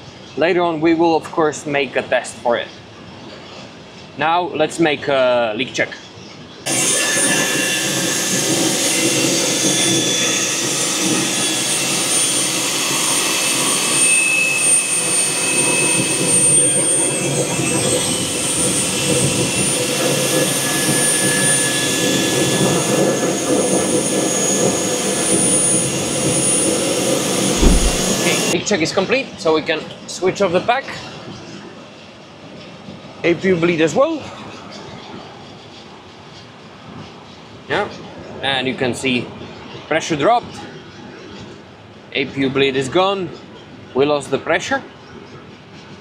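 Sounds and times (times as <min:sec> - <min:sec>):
loud rush of air: 0:27.6 - 0:28.6.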